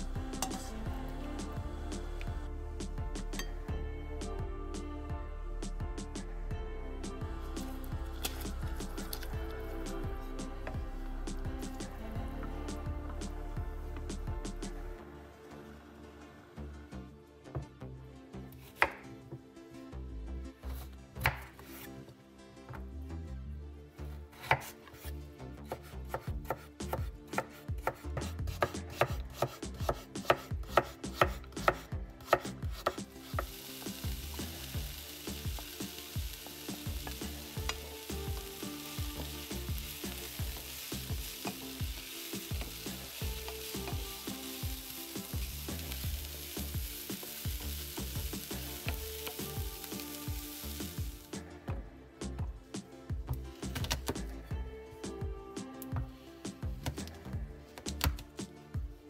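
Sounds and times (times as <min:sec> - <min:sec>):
knife chopping on cutting board: 0:20.7 - 0:21.9, 0:24.4 - 0:25.1, 0:25.7 - 0:33.5
food sizzling in oil: 0:32.8 - 0:51.3.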